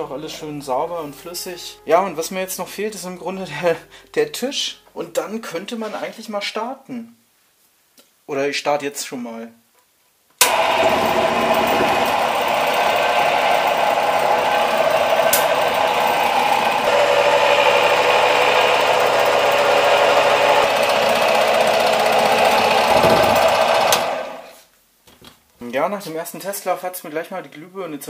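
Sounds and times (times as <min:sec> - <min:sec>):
scroll saw running: 0:10.4 - 0:24.6
machine vibrating on bench: 0:10.5 - 0:24.4.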